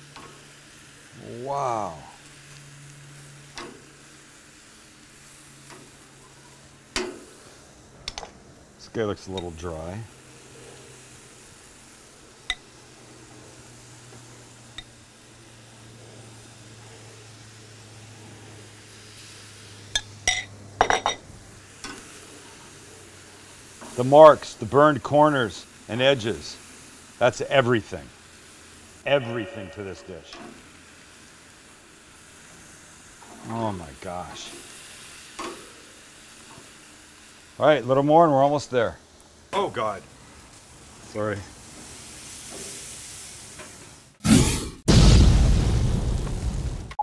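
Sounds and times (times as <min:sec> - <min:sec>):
meat sizzling on a grill: 0:00.0 - 0:46.8
metal utensil clinking: 0:19.9 - 0:22.0.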